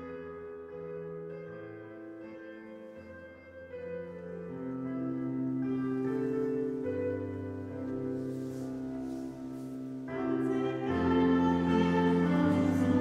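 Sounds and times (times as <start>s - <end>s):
slow piano chords on keyboard: 0.0s - 13.0s.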